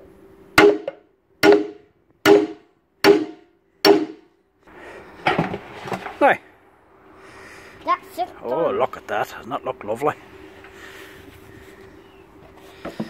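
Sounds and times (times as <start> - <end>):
hammer striking metal shaft: 0.6 - 4.2.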